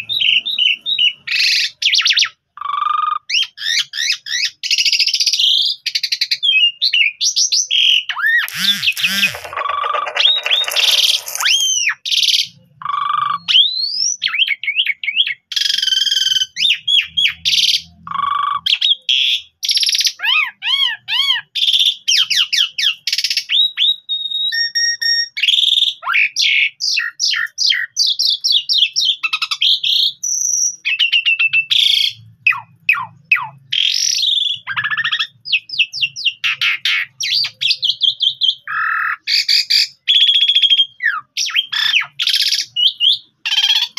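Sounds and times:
starling singing: 0:03.3 - 0:24.0.

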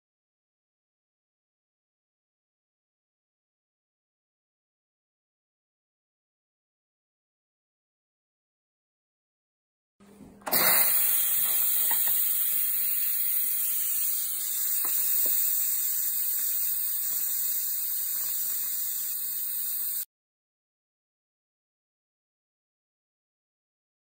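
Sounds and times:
pressure cooker steam hissing: 0:10.5 - 0:20.1.

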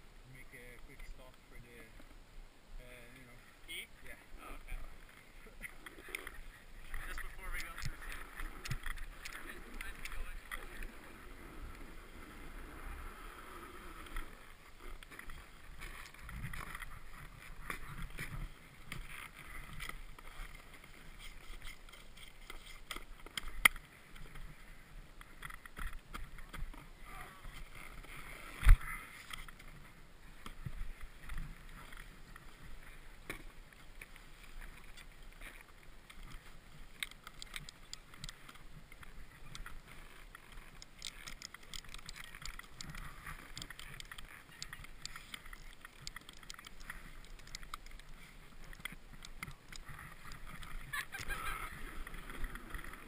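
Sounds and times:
snowboard scraping over snow: 0:07.2 - 0:21.2, 0:26.8 - 0:33.2.

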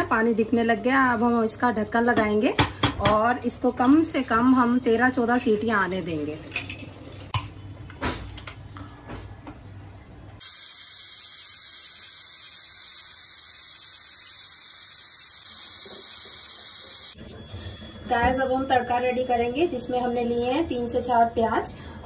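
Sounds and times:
pressure cooker steam hissing: 0:10.4 - 0:17.2.

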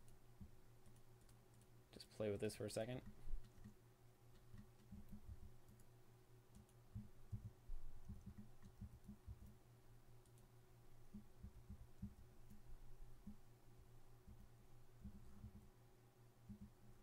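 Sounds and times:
low room hum: 0:00.0 - 0:17.0
mouse and keyboard clicks: 0:03.0 - 0:05.9.

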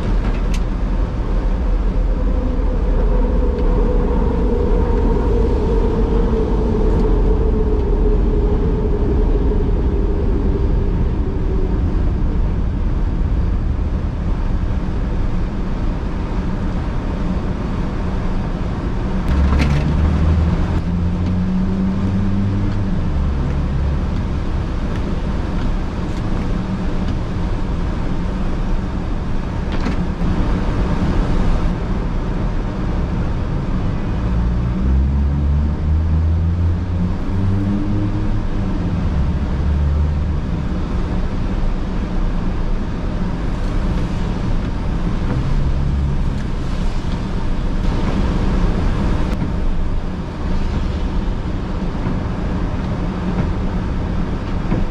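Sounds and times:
car road noise on wet pavement: 0:00.0 - 0:54.9
falling hum: 0:00.0 - 0:54.9
low rumble: 0:00.0 - 0:54.9.

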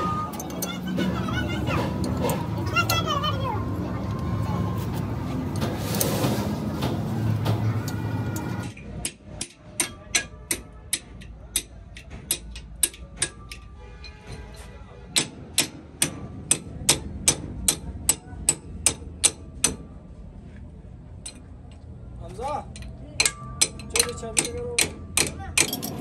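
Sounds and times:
hammer striking metal: 0:08.3 - 0:14.5, 0:15.1 - 0:20.0, 0:22.7 - 0:26.0.

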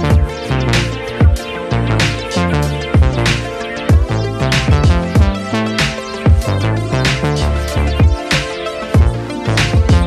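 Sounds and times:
electronic music: 0:00.0 - 0:10.0
synth chords: 0:00.0 - 0:10.0
deep kick drum: 0:00.1 - 0:00.4, 0:03.0 - 0:03.3, 0:03.9 - 0:05.4, 0:06.3 - 0:06.5, 0:08.0 - 0:08.2, 0:09.0 - 0:10.0.

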